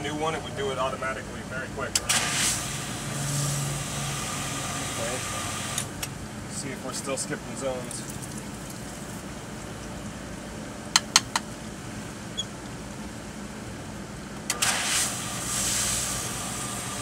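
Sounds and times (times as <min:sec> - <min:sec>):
sharp clicks: 0:11.0 - 0:11.5.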